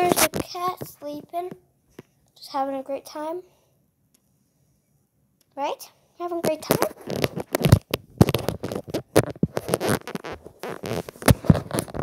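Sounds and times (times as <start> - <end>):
phone microphone handling noise: 0.0 - 2.1, 6.4 - 12.0.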